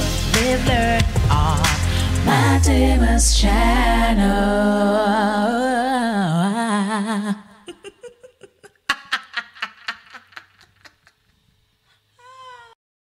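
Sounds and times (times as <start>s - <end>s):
woman laughing: 7.5s - 11.3s.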